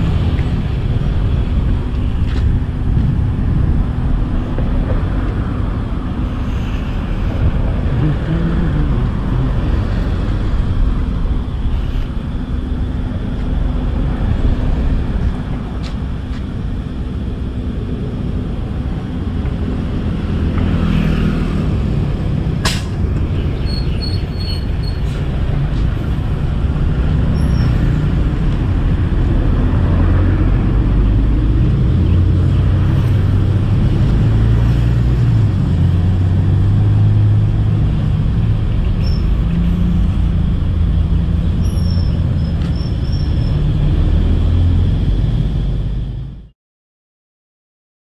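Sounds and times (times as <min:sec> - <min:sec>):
large engine droning: 0:00.0 - 0:46.5
bird chirps: 0:23.4 - 0:25.0, 0:38.8 - 0:39.4.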